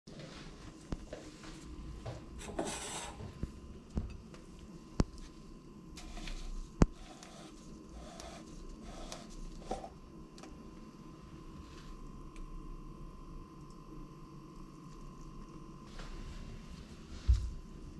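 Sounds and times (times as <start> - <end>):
cutting board scraping on counter: 2.4 - 3.3.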